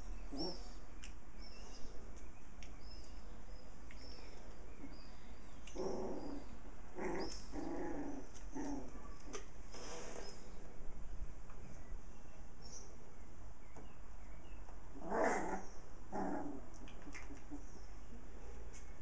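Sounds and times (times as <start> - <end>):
puppies growling and yapping: 0.2 - 0.8, 5.6 - 9.5, 14.9 - 17.7.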